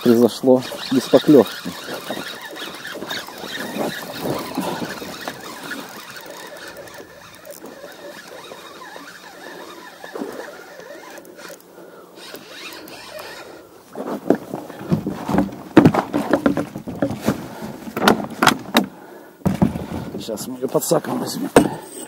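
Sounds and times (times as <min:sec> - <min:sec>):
fishing reel cranking: 0:00.0 - 0:13.7.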